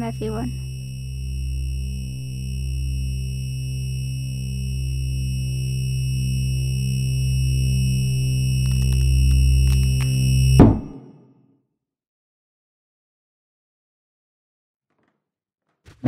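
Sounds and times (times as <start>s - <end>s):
synthesizer drone: 0.0s - 10.6s
faint clicks: 8.6s - 10.2s.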